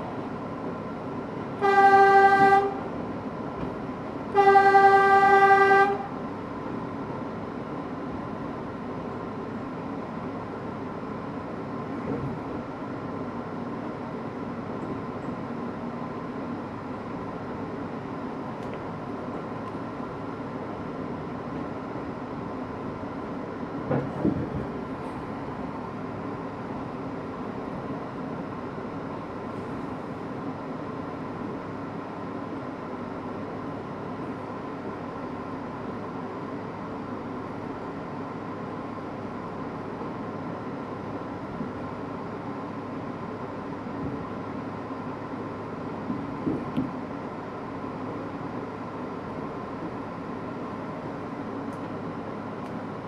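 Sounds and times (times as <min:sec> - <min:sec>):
train wheels rolling on rail: 0:00.0 - 0:53.0
loud train clunks: 0:01.4 - 0:06.3, 0:11.9 - 0:12.6, 0:23.7 - 0:25.5, 0:44.0 - 0:44.4, 0:46.0 - 0:47.1.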